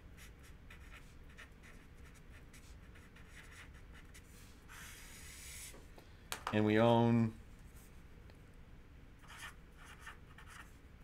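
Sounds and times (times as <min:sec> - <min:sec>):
marker writing on paper: 0:00.2 - 0:05.8, 0:09.2 - 0:10.7.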